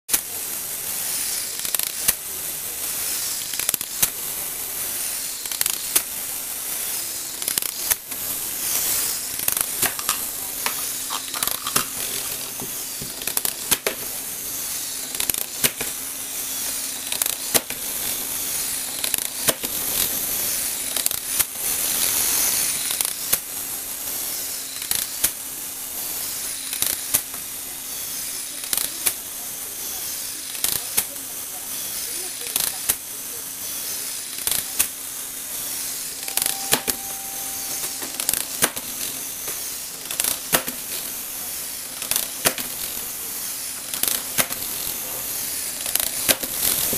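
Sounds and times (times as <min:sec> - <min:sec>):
sharp plastic clack: 0:09.8 - 0:14.0.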